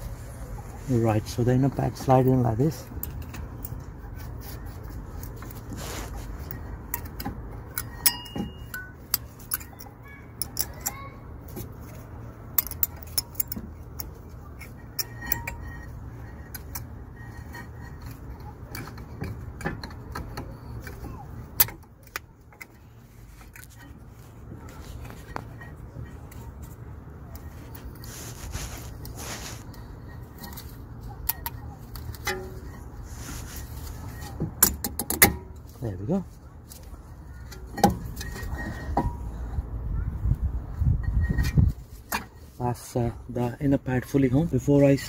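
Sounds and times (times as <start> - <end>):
brake pad clinking on metal: 6.4 - 22.8, 29.7 - 33.0, 33.8 - 39.5.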